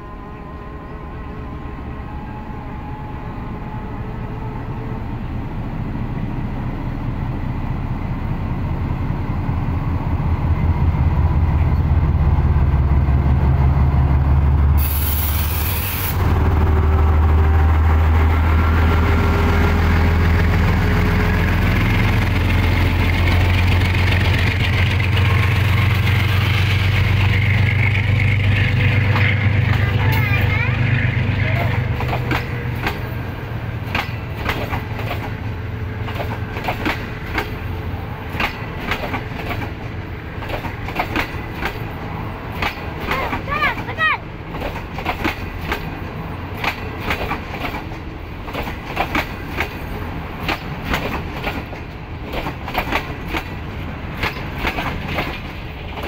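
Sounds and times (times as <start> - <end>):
locomotive engine drone: 0.0 - 56.0
brief hiss: 14.8 - 16.2
coaches rolling on rails: 16.1 - 56.0.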